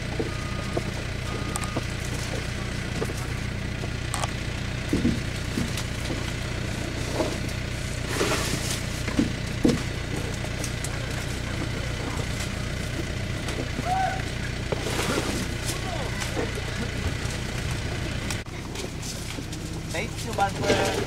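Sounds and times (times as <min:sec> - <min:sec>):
rustles and knocks: 0:00.0 - 0:13.8
low engine hum: 0:00.0 - 0:21.0.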